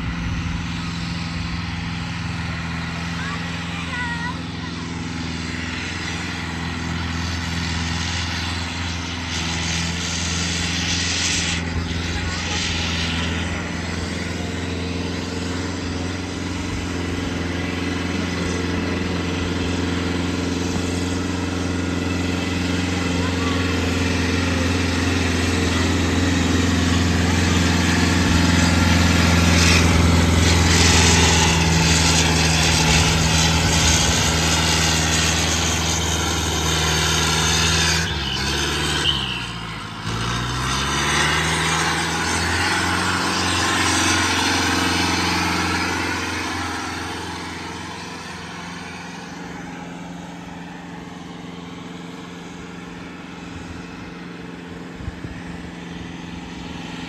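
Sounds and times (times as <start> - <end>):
tractor engine under load revving: 0.0 - 57.0.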